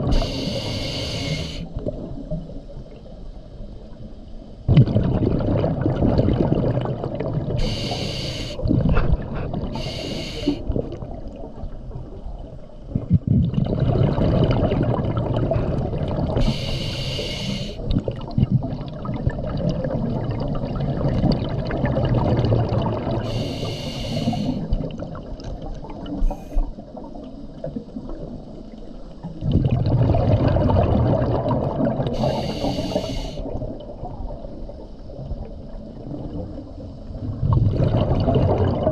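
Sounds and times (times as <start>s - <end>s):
gurgling exhaled bubbles: 0.0s - 0.8s, 4.7s - 28.5s, 29.2s - 38.9s
regulator hissing inhalations: 0.1s - 1.7s, 7.6s - 8.6s, 9.8s - 10.6s, 16.4s - 17.9s, 23.2s - 24.7s, 32.2s - 33.5s.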